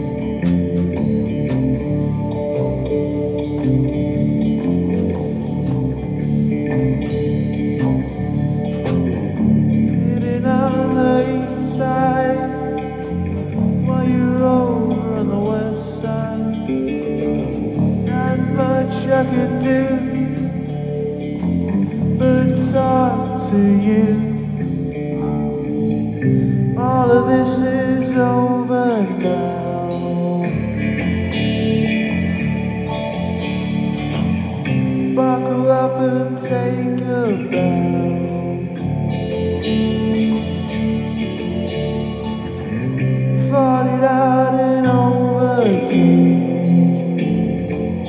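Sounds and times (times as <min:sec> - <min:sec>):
rock band playing live: 0:00.0 - 0:48.0
man singing: 0:09.8 - 0:25.6, 0:26.6 - 0:32.2, 0:34.7 - 0:40.4, 0:42.5 - 0:48.0.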